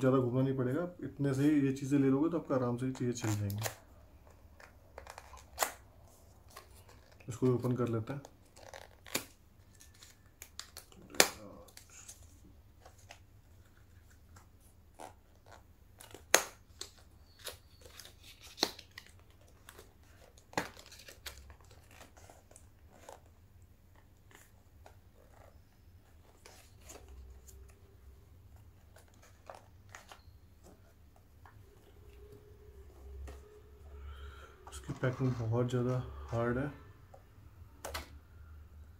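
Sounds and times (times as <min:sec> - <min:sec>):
packaging crinkling: 0:15.0 - 0:23.3.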